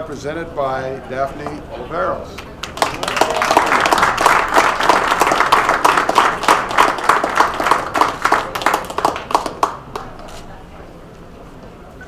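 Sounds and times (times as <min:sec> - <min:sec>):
people applauding: 0:02.4 - 0:10.4.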